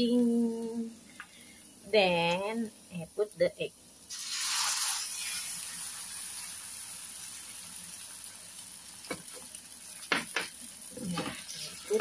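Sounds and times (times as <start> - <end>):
egg sizzling in a hot tray: 0.8 - 12.0.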